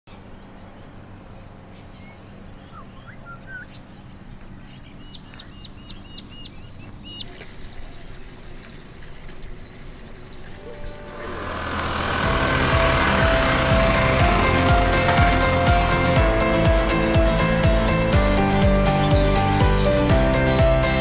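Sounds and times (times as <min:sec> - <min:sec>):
birds chirping: 0:00.1 - 0:21.0.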